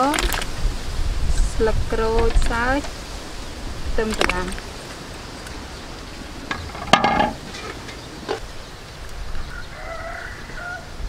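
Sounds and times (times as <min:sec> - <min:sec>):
chicken calling faintly: 0:09.4 - 0:11.0.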